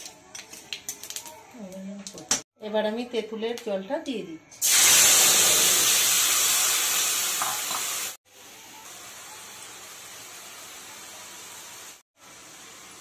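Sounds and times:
liquid hissing in hot oil: 4.6 - 8.2.

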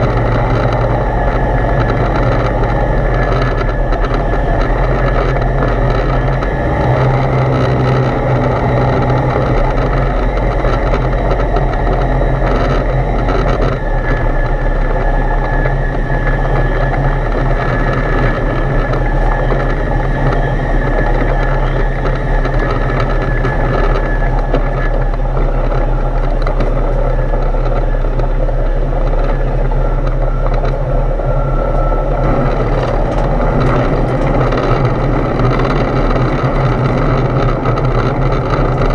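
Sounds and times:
aircraft engine and propeller drone: 0.0 - 38.9
rushing airflow: 0.0 - 38.9.

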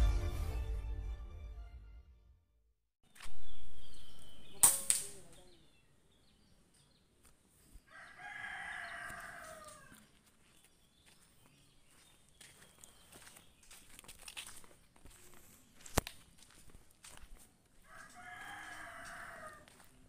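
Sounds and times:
sharp cracks: 4.6 - 5.4
rooster crowing: 7.9 - 10.1, 17.8 - 19.9.

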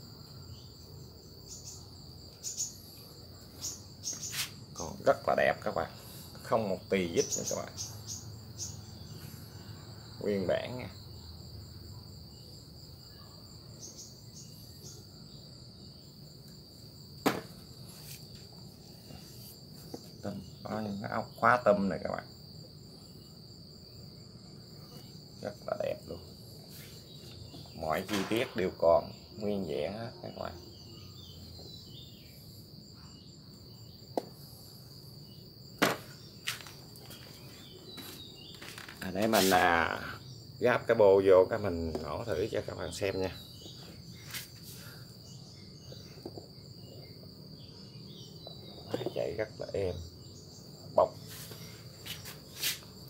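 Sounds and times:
crickets trilling: 0.0 - 53.0
sharp knock: 17.2 - 17.6, 35.8 - 36.1.

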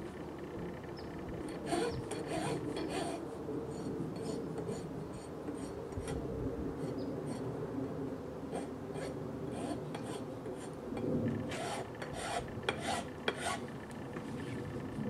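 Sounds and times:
hand file scraping laminate: 1.5 - 6.2, 8.5 - 10.8, 11.4 - 13.6.

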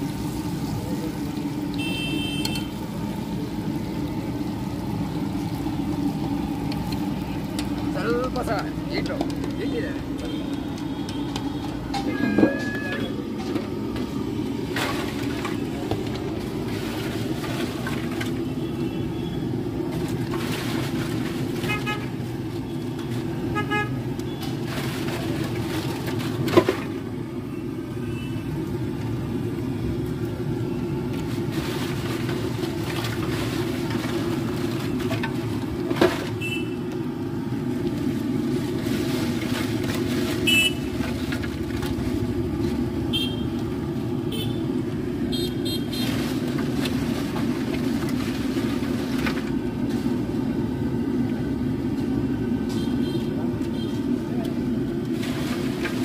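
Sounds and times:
traffic engines humming: 0.0 - 56.0
short horn beeps: 1.8 - 2.7, 40.5 - 40.9.

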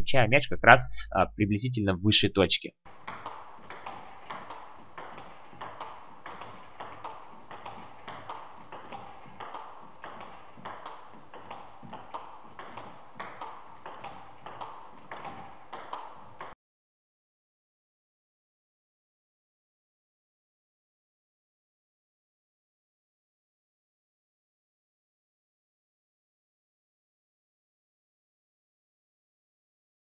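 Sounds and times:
table tennis ball clicking: 2.9 - 16.6.

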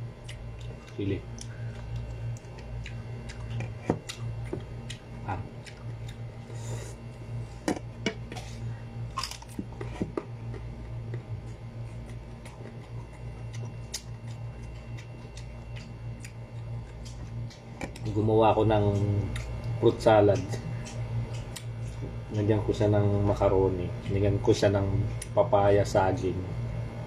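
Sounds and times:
crunchy chewing: 0.0 - 22.7
steady low hum: 0.0 - 27.0.

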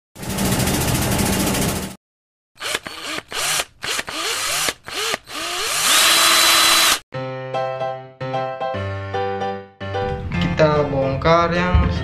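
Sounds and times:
electric drill motor revving: 2.6 - 7.0.

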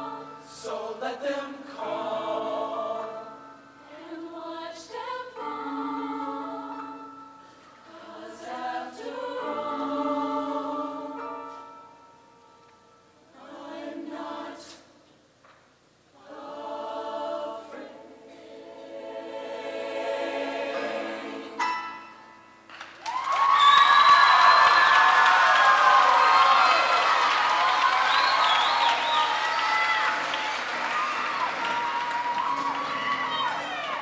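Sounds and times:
choir singing in harmony: 0.0 - 11.9, 13.3 - 15.0, 16.2 - 22.0.

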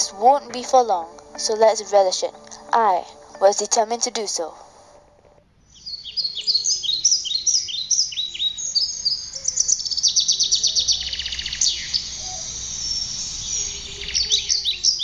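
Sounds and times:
birds chirping: 5.6 - 15.0
bird trill: 5.7 - 15.0.

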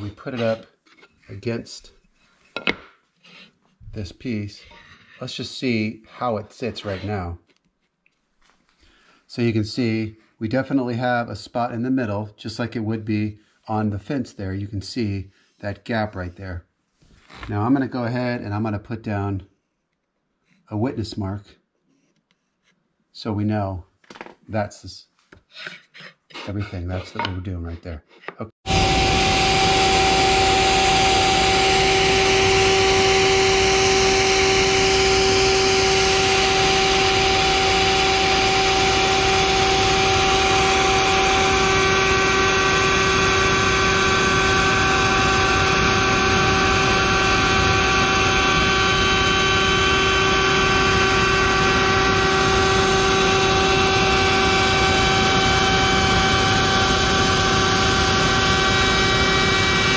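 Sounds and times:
router whining: 0.0 - 1.5, 28.7 - 59.9.

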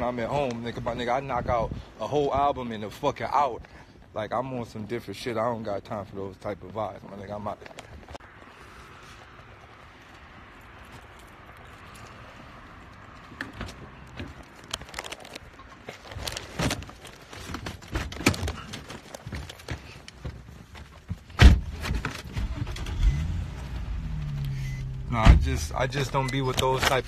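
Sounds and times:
car door shutting: 21.4 - 23.5, 24.1 - 27.0.

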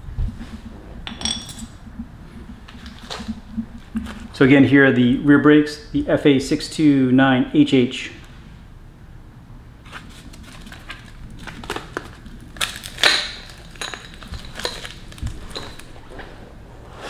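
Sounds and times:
plastic packaging crackling: 9.8 - 16.4.

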